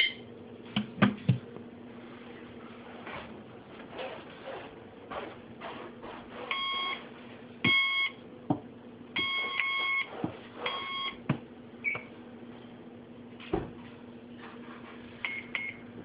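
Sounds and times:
electronic keypad beeping: 0:10.7 - 0:11.2.

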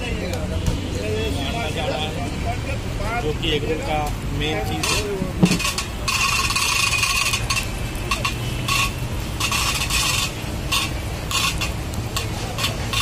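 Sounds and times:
egg sizzling: 0:01.0 - 0:13.0
steel ladle scraping on griddle: 0:03.9 - 0:13.0.

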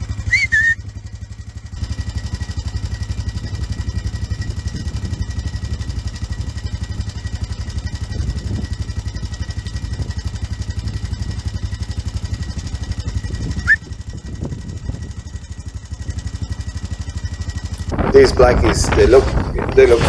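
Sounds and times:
quad bike engine running: 0:00.0 - 0:20.0
short sharp rising whistle: 0:00.3 - 0:00.8, 0:13.6 - 0:13.9.

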